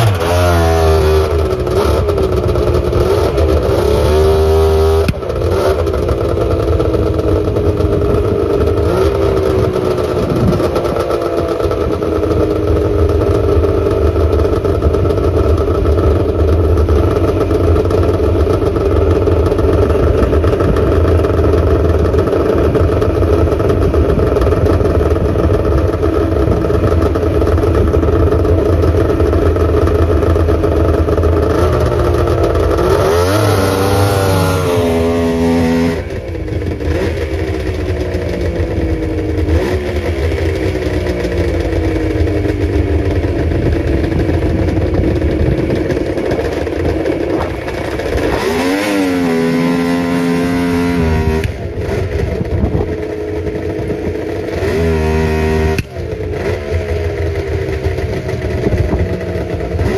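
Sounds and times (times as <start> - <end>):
snowmobile engine revving: 0.0 - 59.9.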